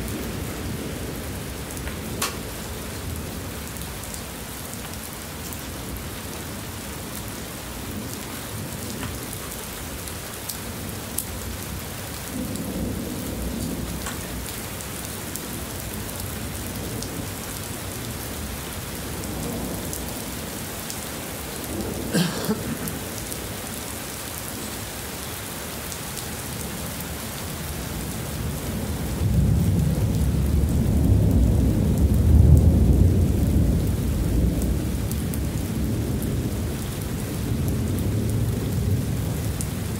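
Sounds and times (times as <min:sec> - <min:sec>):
heavy rain pouring: 0:00.0 - 0:39.9
thunder rumbling: 0:28.4 - 0:39.9.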